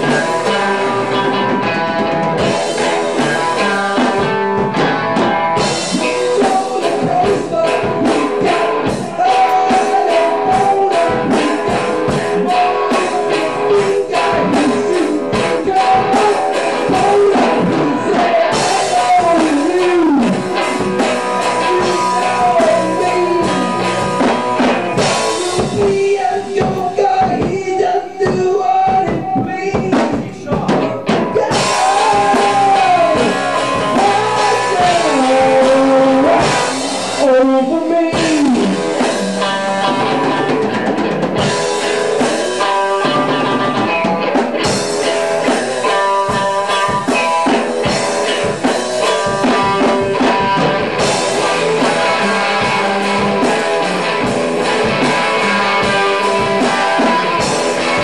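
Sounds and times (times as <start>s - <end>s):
drum kit with cymbals: 0.0s - 58.0s
electric guitars: 0.0s - 58.0s
man singing into a microphone: 5.8s - 24.1s, 25.0s - 40.1s.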